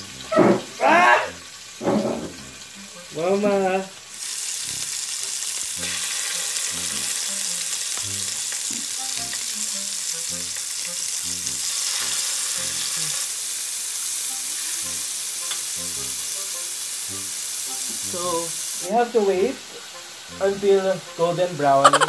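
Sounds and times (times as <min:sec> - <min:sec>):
steak sizzling in a skillet: 0:00.0 - 0:22.0
tongs moving meat in pan: 0:04.1 - 0:13.4, 0:14.2 - 0:18.3.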